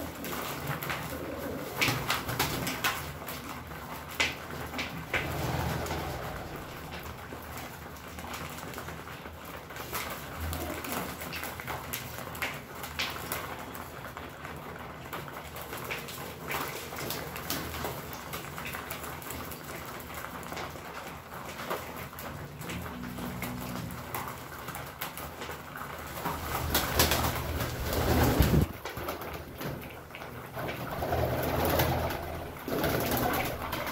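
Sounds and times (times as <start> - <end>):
pigeons cooing: 0.0 - 3.8, 5.0 - 7.3, 10.3 - 11.4, 30.6 - 33.9
rustling: 0.0 - 9.0, 20.5 - 33.9
beaks pecking on a tray: 0.0 - 33.9.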